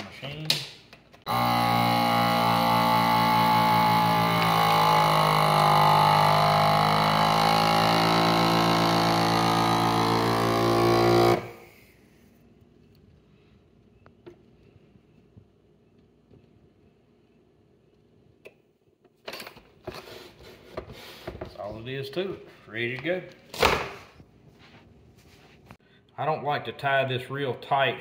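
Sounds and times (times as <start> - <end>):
vacuum sealer pump motor: 1.3 - 11.7.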